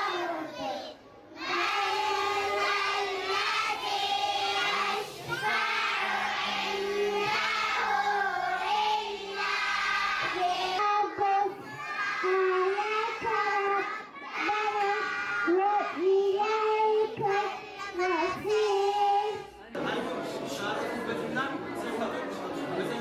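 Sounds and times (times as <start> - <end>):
children singing in unison: 0.0 - 19.5
girl singing into a microphone: 10.1 - 19.5.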